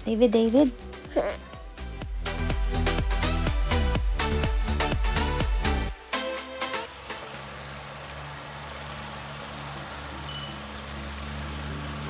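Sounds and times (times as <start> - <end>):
sauce sizzling in a frying pan: 6.7 - 12.0.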